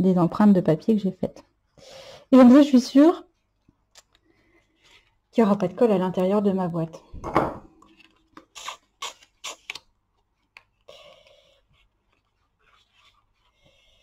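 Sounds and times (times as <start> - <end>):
paper clicks and crinkles: 3.4 - 5.2, 7.8 - 14.0
paper rustle: 7.8 - 14.0.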